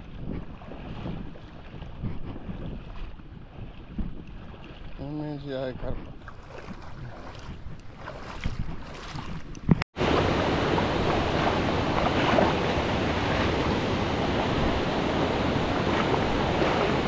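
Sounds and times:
waves: 0.0 - 17.0
wind: 0.0 - 17.0.

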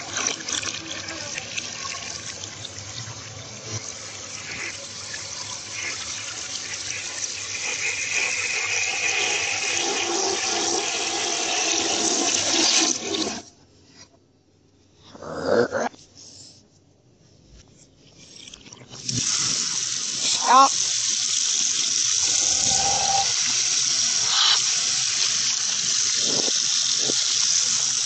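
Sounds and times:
toilet flushing: 0.0 - 13.5, 18.4 - 28.0.

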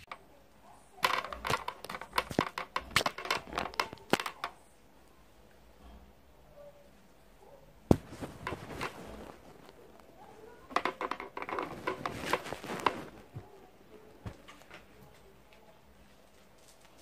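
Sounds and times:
clatter and rustle: 1.0 - 4.6, 7.9 - 13.6, 14.2 - 17.0
clicks and knocks: 1.0 - 4.6, 10.7 - 13.4
handling noise near microphone: 1.0 - 4.6, 7.8 - 17.0.

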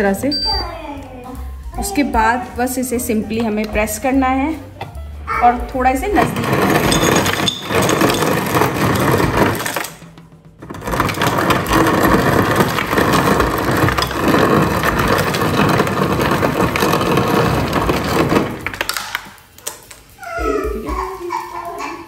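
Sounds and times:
ice crusher grinding: 6.1 - 19.0
crushed ice pouring into glass: 6.4 - 9.9, 10.8 - 18.9.

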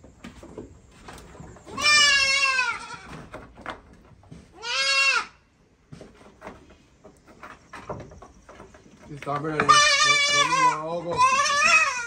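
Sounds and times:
goat bleating: 1.7 - 3.2, 4.5 - 5.4, 9.5 - 12.0.

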